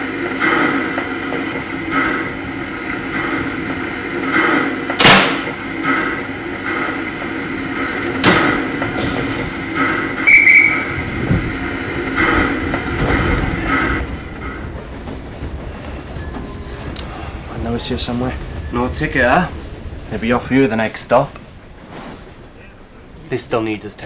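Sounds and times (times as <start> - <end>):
heavy train doors slamming: 0.0 - 23.2
standing train noise: 0.0 - 24.0
guard's whistle: 10.2 - 11.0.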